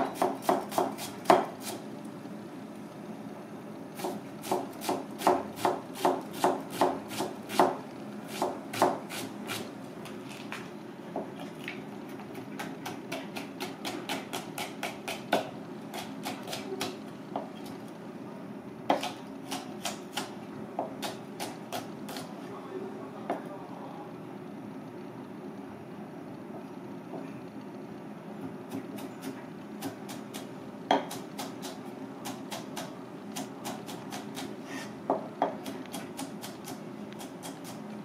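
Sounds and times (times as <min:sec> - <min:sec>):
knife chopping on plastic board: 0:00.0 - 0:01.8, 0:04.0 - 0:09.7.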